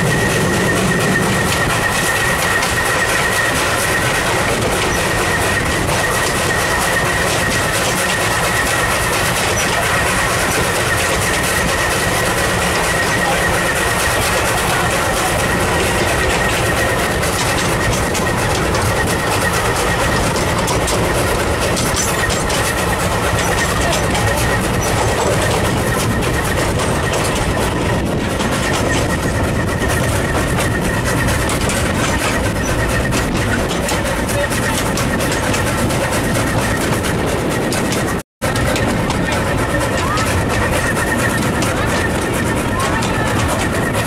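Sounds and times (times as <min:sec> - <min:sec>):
steam locomotive working: 0:00.0 - 0:44.0
train wheel and rail noise: 0:00.0 - 0:44.0
wind on microphone: 0:10.5 - 0:44.0.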